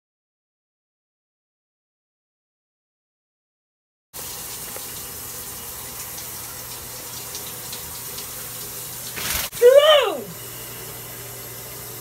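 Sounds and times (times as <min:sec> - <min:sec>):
shower water spraying: 0:04.2 - 0:12.0.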